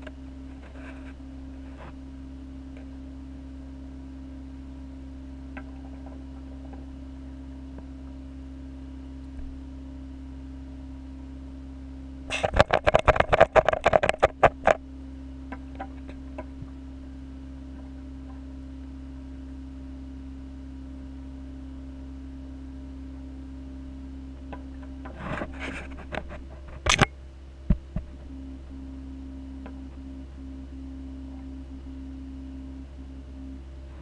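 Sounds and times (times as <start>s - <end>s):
aquarium equipment humming: 0.0s - 34.0s
rapid clicks and knocks: 12.3s - 14.8s.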